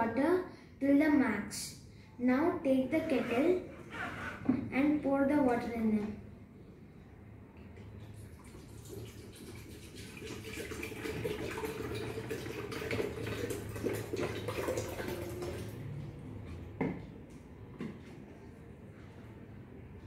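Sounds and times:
water pouring into kettle: 8.1 - 15.8.

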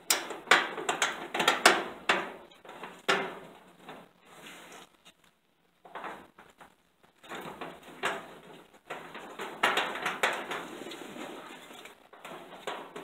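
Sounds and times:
jacket rustling against microphone: 4.2 - 5.3.

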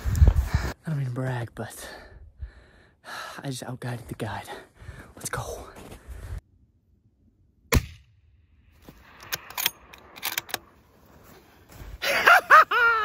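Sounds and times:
rifle shot: 7.7 - 8.2
metallic clicks: 9.1 - 10.7.

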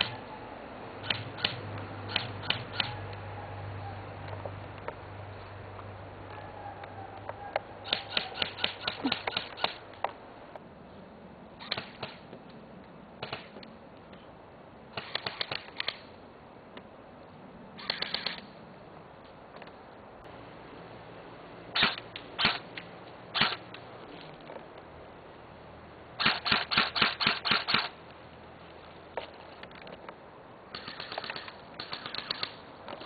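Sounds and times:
airsoft rifles firing: 7.8 - 9.8, 14.9 - 16.0, 21.8 - 22.7, 26.2 - 28.0, 30.7 - 32.6.

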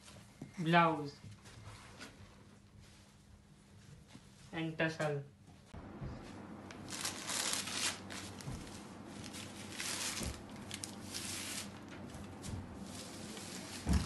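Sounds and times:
fabric rustling: 6.8 - 14.0.

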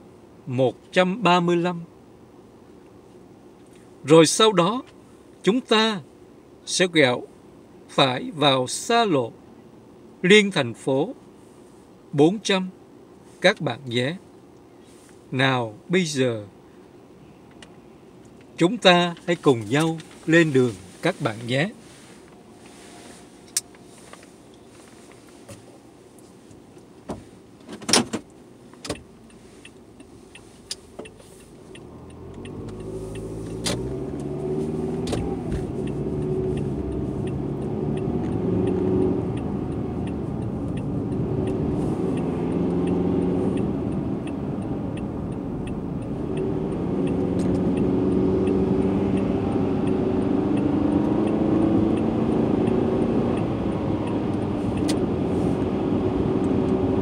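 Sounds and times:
car engine from inside cabin: 12.9 - 57.0
tyre road noise: 13.0 - 57.0
faint regular ticking: 28.4 - 55.2.

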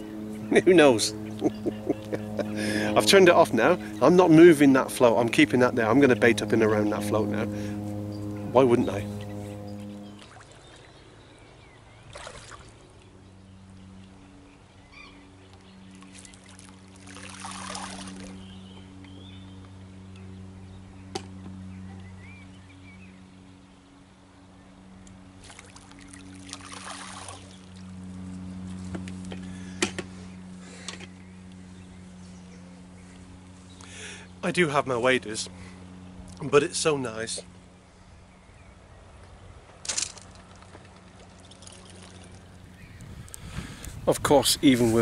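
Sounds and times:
steady low hum: 0.0 - 45.0
water splashing: 12.1 - 12.8, 16.1 - 18.4, 25.4 - 27.7, 41.1 - 42.6.

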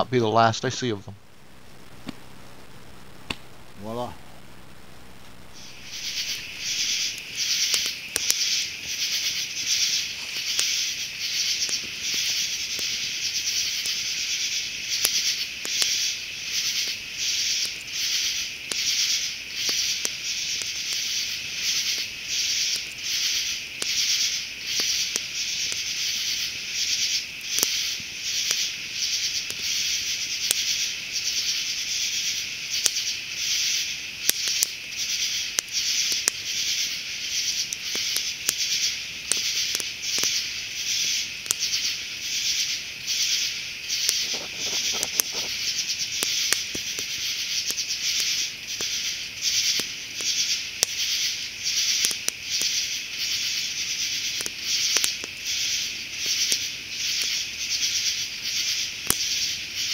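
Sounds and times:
insects buzzing in pulses: 0.0 - 59.9
sharp clicks: 3.2 - 3.6, 44.0 - 45.5.

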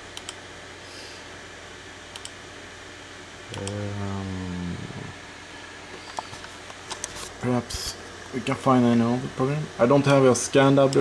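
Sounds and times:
computer fan whirring: 0.0 - 11.0
man humming: 3.5 - 5.3.

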